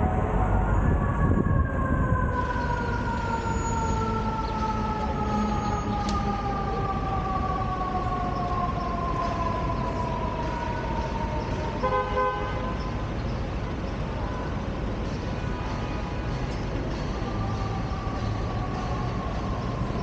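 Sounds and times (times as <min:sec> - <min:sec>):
emergency vehicle siren: 0:00.0 - 0:20.0
street traffic: 0:00.0 - 0:20.0
vehicle horn honk: 0:11.8 - 0:12.7.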